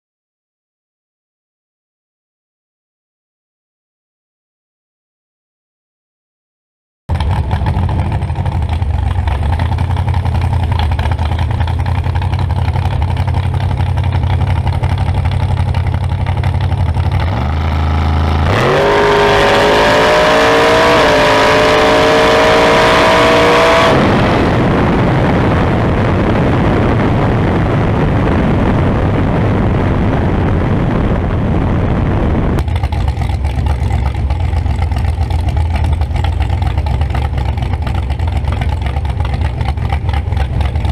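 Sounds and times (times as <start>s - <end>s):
race car engine revving: 7.1s - 28.8s
wind and road rush: 7.1s - 40.9s.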